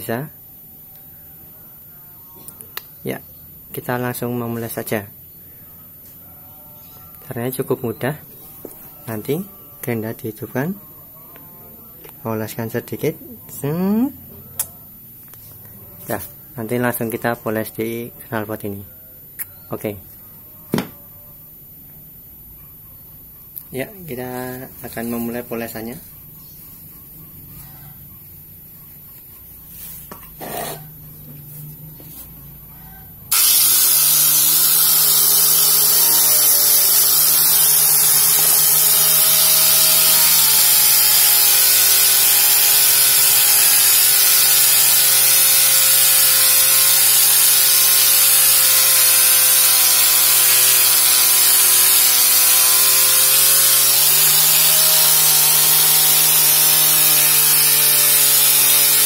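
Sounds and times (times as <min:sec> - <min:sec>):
polishing grinder whine: 0:33.3 - 0:59.0.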